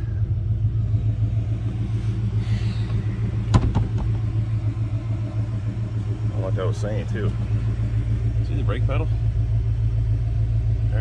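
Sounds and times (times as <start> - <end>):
car engine idling: 0.0 - 11.0
sharp knock: 3.5 - 4.2.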